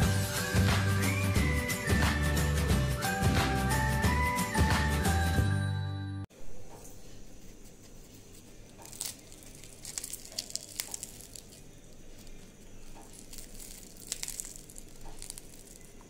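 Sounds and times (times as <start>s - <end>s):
fried batter crust crackling: 7.4s - 16.0s.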